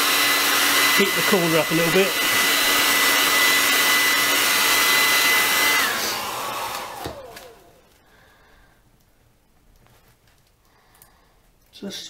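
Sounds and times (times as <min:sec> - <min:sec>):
hair dryer blowing: 0:00.0 - 0:08.0.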